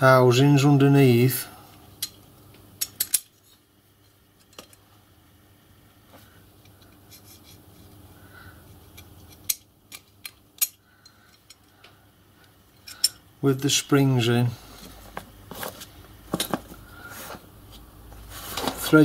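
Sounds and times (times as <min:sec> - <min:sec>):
steel parts clinking together: 0:02.8 - 0:03.6, 0:09.4 - 0:11.7, 0:12.8 - 0:13.2.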